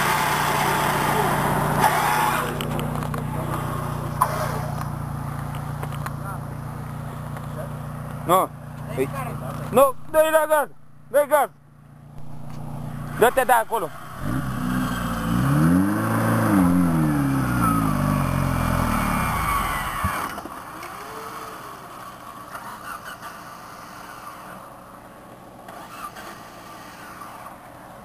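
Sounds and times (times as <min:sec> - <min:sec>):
engine revving: 0:00.0 - 0:04.9, 0:12.2 - 0:21.8.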